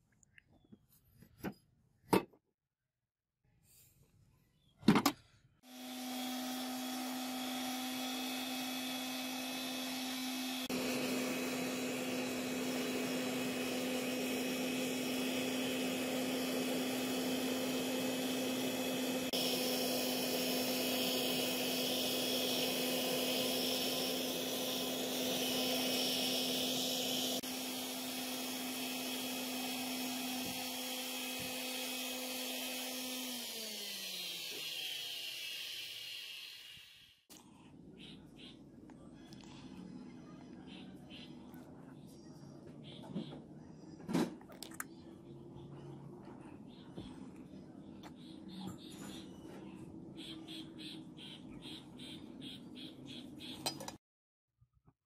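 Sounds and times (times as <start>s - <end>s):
gas forge roaring: 5.8s - 36.6s.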